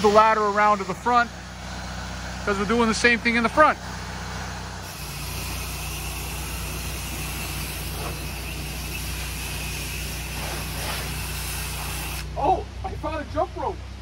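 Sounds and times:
rain hissing: 0.0 - 12.7
pressure washer engine running: 0.0 - 13.7
spray wand rinsing: 4.2 - 12.4.

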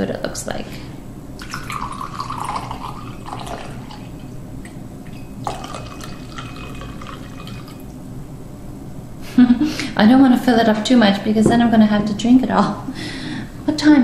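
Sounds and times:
wine pouring into a glass: 1.4 - 4.4, 5.0 - 8.0.

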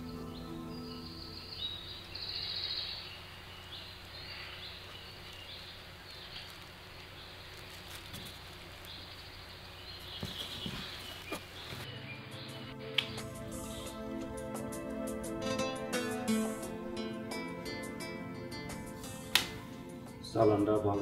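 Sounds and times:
low background hiss: 0.0 - 10.2
small birds chirping: 0.0 - 14.3.

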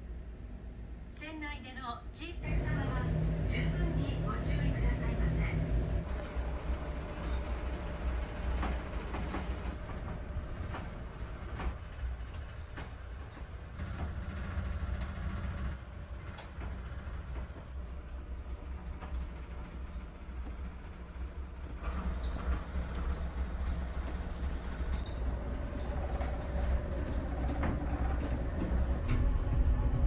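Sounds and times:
ferry engine rumble: 2.4 - 30.0
faint ticks and creaks: 6.0 - 29.3.

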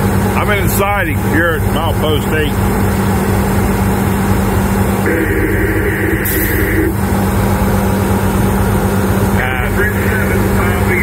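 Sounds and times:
locomotive diesel engine rumble: 0.0 - 11.0
high sustained tone: 4.2 - 7.6.

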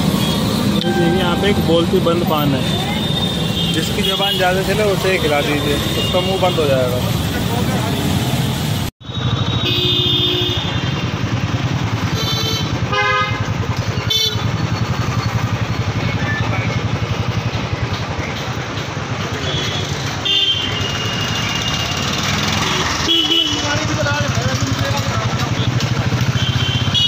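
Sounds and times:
traffic: 0.0 - 27.0
motorcycle engine running: 10.5 - 27.0.

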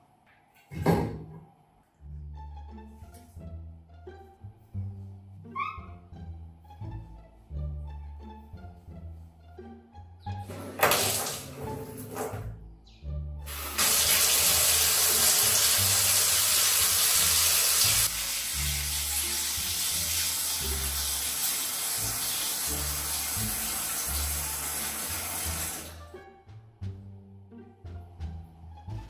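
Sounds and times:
water running from a tap: 10.8 - 11.6, 13.5 - 25.9.

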